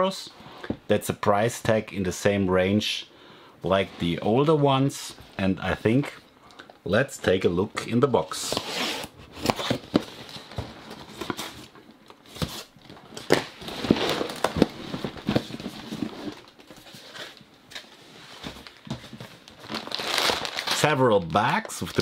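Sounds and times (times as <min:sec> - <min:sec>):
plastic bags crinkling: 0:12.9 - 0:17.1, 0:18.5 - 0:22.0
cardboard box being opened: 0:13.2 - 0:17.4.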